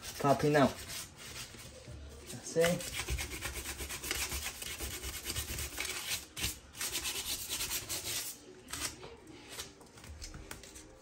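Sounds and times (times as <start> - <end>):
sandpaper rubbing on wood: 0.0 - 1.6, 2.4 - 8.4.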